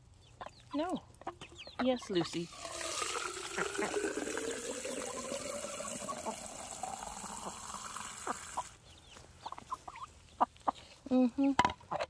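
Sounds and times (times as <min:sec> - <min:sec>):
hose water filling plastic jug: 0:02.4 - 0:08.8.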